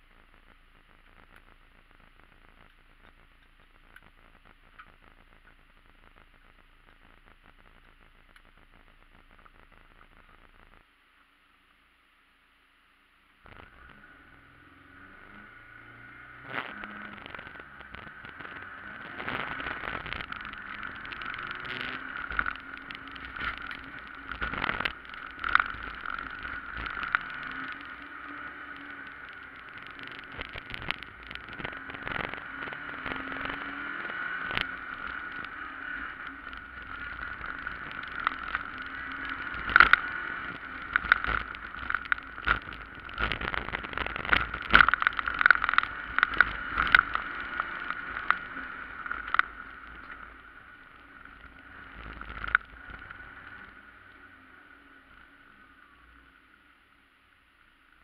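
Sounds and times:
car engine whining: 0:13.4 - 0:58.0.

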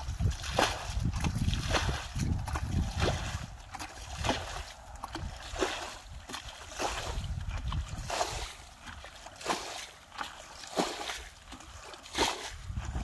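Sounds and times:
water sloshing and splashing: 0:00.0 - 0:13.0.

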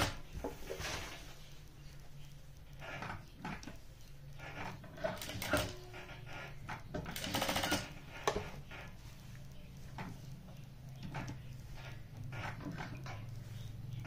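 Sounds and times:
sewing machine stitching: 0:04.4 - 0:08.1.

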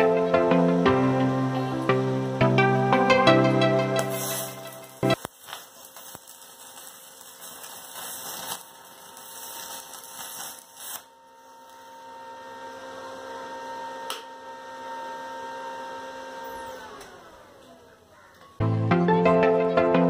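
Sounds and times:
welder electrical hum: 0:00.0 - 0:19.6
welding arc crackling: 0:00.8 - 0:12.4
welder click: 0:04.0 - 0:11.8.

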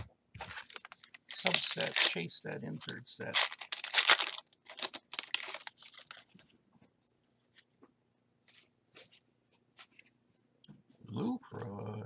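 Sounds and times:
foil wrapper crinkling and tearing: 0:00.4 - 0:02.2, 0:02.8 - 0:06.4
cards rustling: 0:00.4 - 0:06.5.

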